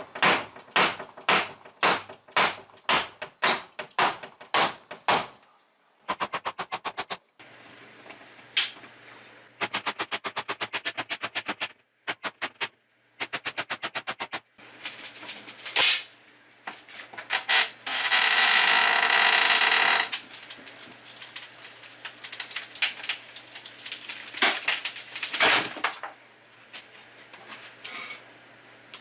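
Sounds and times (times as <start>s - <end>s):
hammer striking cabinet: 0.0s - 5.3s.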